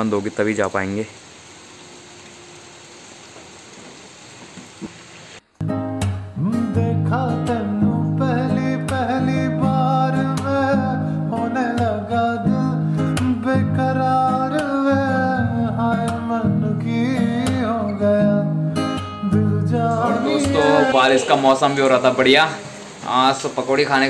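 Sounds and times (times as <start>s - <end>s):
strummed acoustic guitar: 5.6s - 22.7s
person singing: 6.4s - 18.6s, 19.2s - 21.8s.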